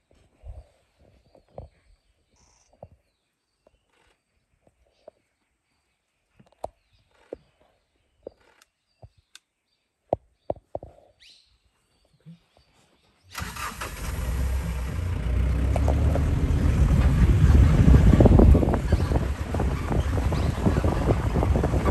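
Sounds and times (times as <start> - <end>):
vehicle engine starting and rumbling: 13.3 - 21.9.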